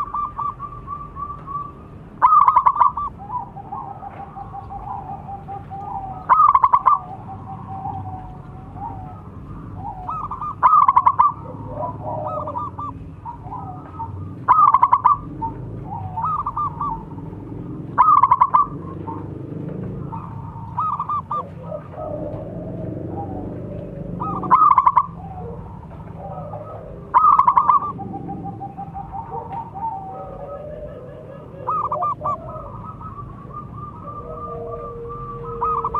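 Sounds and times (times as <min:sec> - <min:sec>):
dove cooing: 0:00.0 - 0:35.9.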